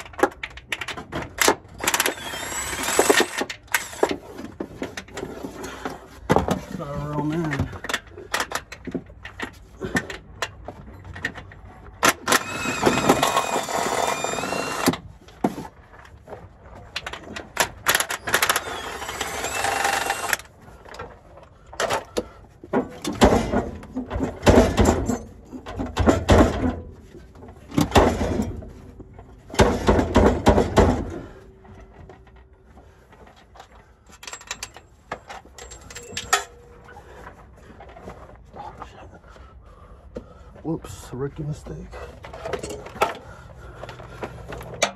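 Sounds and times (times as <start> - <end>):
cordless power wrench whining: 1.4 - 4.5, 12.0 - 15.1, 17.2 - 20.5.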